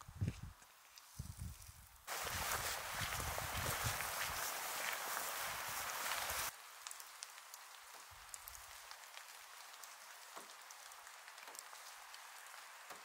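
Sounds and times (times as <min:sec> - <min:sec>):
patter of raindrops: 0:00.0 - 0:13.0
steady outdoor hiss: 0:00.0 - 0:13.0
low wind rumble: 0:02.2 - 0:04.6.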